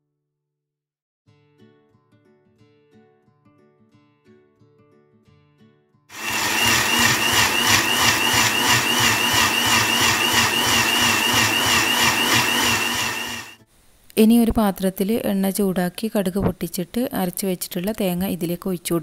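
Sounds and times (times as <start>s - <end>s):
soft acoustic guitar music: 1.2s - 6.1s
blender whirring: 6.1s - 13.6s.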